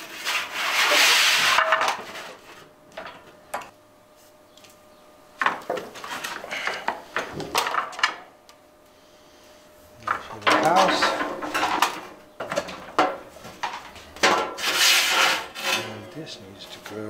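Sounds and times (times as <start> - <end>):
sheet metal scraping and rattling: 10.4 - 16.1.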